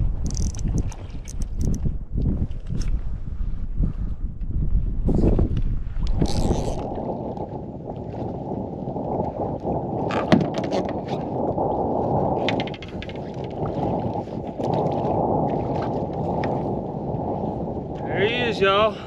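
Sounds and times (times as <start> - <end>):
wind buffeting microphone: 0.0 - 19.0
sharp ticks and knocks: 0.2 - 1.9
water sloshing against boat hull: 12.4 - 16.7.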